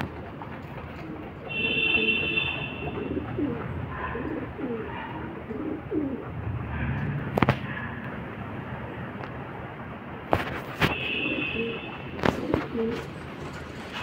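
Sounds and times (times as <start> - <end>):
pigeons cooing: 0.5 - 6.8, 11.0 - 13.9.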